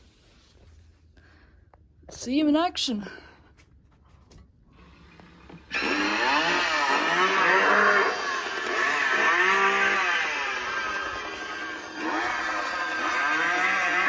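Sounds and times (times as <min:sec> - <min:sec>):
chainsaw sound effect from speaker: 0:05.7 - 0:14.0.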